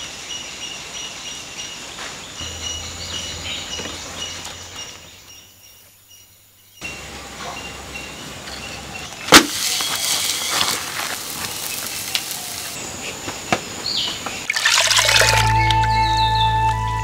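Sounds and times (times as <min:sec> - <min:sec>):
flatbread sizzling on a griddle: 0:09.4 - 0:12.8.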